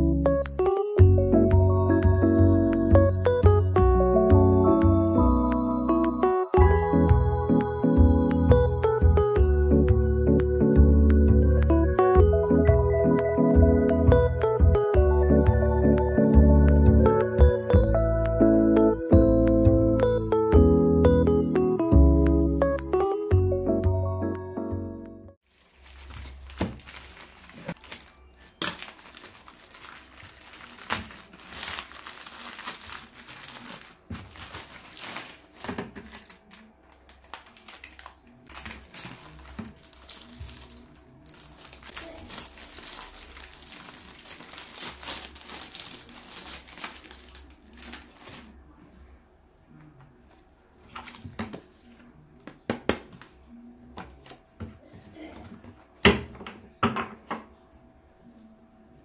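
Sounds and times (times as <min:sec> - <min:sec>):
plastic and paper crinkling: 0:25.4 - 0:49.0, 0:50.8 - 0:52.1.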